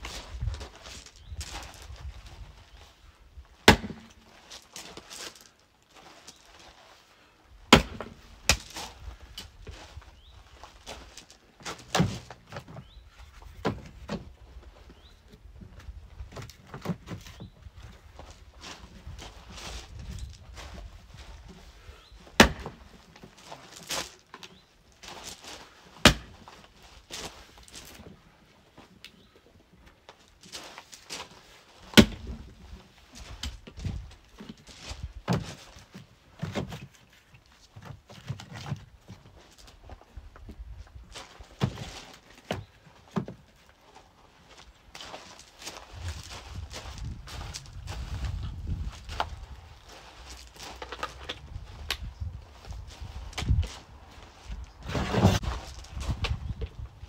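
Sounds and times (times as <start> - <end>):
axe splitting wood: 3.6 - 4.2, 7.7 - 8.8, 22.4 - 22.9, 26.0 - 26.4, 31.9 - 32.5
dull thuds of logs: 3.6 - 4.2, 7.7 - 9.9, 11.6 - 14.4, 22.2 - 24.1, 26.0 - 28.1, 31.2 - 37.1, 40.3 - 43.6, 54.8 - 57.0.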